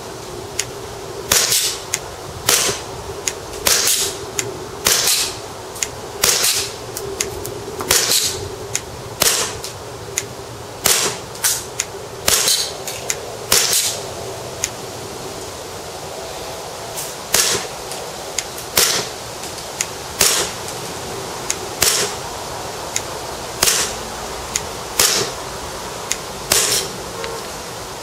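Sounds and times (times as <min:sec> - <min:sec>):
airsoft pistol shots: 0:01.3 - 0:01.8, 0:02.4 - 0:02.9, 0:03.6 - 0:04.1, 0:04.8 - 0:05.4, 0:06.2 - 0:06.8, 0:07.8 - 0:08.4, 0:09.2 - 0:09.6, 0:10.8 - 0:11.6, 0:12.2 - 0:12.7, 0:13.5 - 0:14.0, 0:17.3 - 0:17.7, 0:18.8 - 0:19.1, 0:20.2 - 0:20.6, 0:21.8 - 0:22.2, 0:23.6 - 0:24.0, 0:25.0 - 0:25.4, 0:26.5 - 0:26.9
faint clicks: 0:07.0 - 0:07.6.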